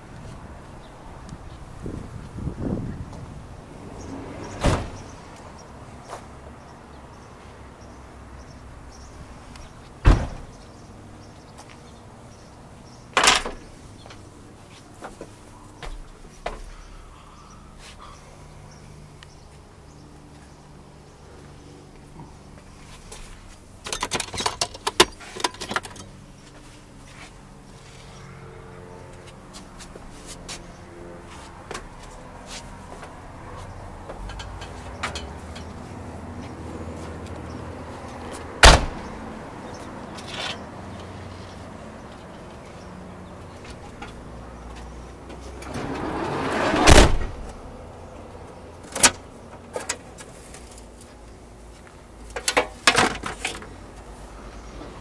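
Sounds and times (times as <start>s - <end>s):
low hum inside a van: 0.0s - 55.0s
sliding door rolling and thudding shut: 3.8s - 5.3s, 10.0s - 10.6s, 45.4s - 47.7s
sharp clicks and rattles: 23.8s - 26.2s.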